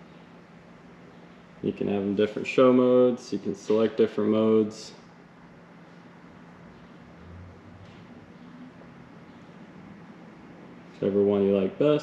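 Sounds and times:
low hum: 0:05.4 - 0:11.0.

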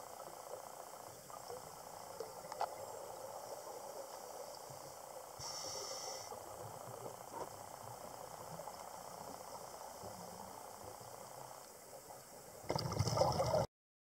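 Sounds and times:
short hiss: 0:05.4 - 0:06.4
underwater regulator bubbling: 0:12.7 - 0:13.7.

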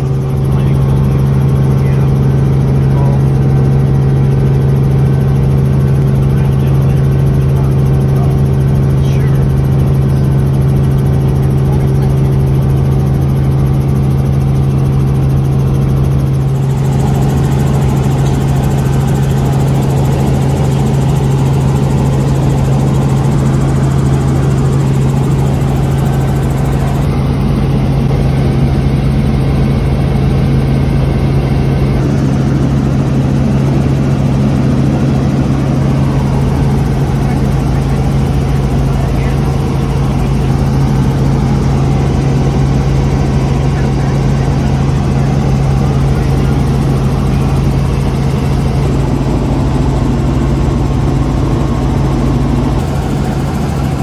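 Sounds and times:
helicopter rotors and engine drone: 0:00.0 - 0:54.0.

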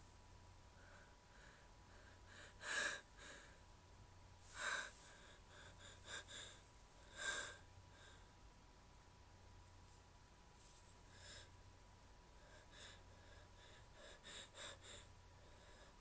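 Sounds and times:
woman gasping breaths: 0:00.8 - 0:03.6, 0:04.4 - 0:08.3, 0:11.1 - 0:11.6, 0:12.4 - 0:16.0.

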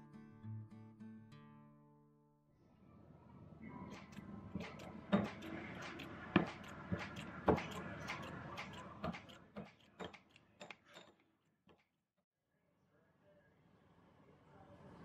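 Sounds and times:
scissors snipping against a dish: 0:04.0 - 0:11.1.

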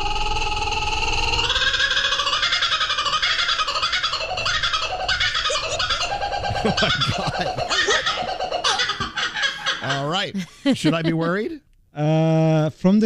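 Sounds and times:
kookaburra laughing call: 0:00.1 - 0:10.3.

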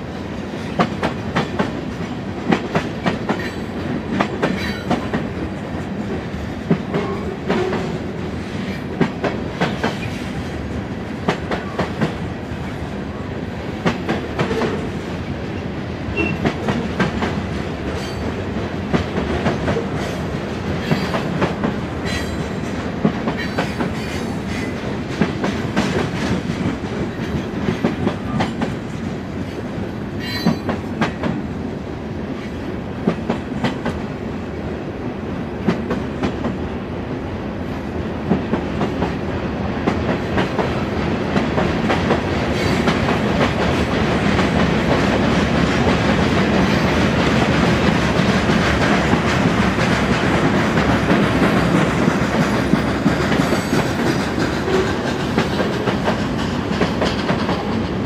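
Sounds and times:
freight train rumble: 0:00.0 - 0:58.0
train wheels clicking over rail joints: 0:00.4 - 0:12.8, 0:16.2 - 0:31.5, 0:39.8 - 0:58.0.

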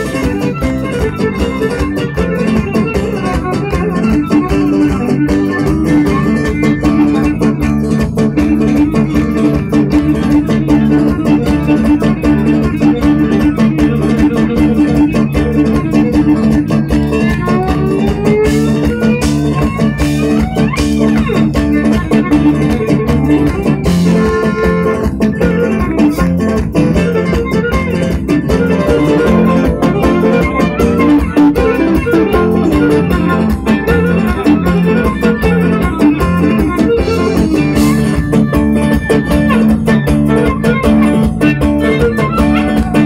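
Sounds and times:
plucked strings folk dance music: 0:00.0 - 0:43.0.

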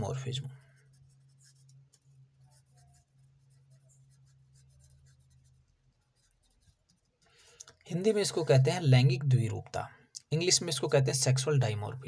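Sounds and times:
pen scratching on paper: 0:00.0 - 0:07.2
low steady hum: 0:00.0 - 0:12.0.

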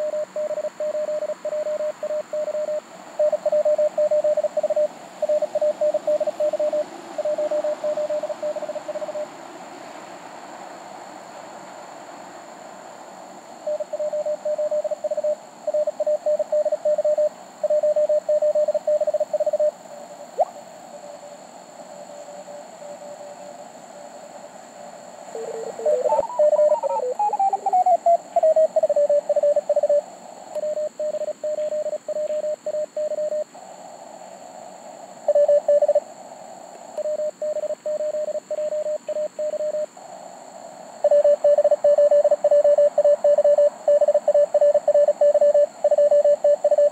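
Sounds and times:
morse code tones: 0:25.4 - 0:30.0.

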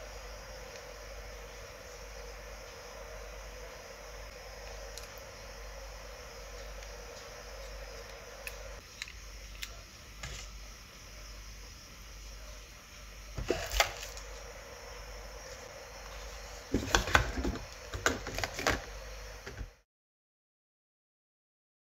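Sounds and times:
steady low hiss: 0:00.0 - 0:13.5
knocking and rustling: 0:16.7 - 0:18.8.

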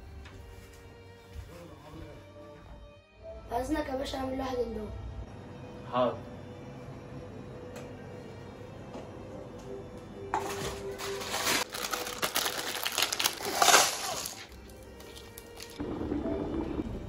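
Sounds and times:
plastic packaging crinkling and tearing: 0:10.4 - 0:15.8.

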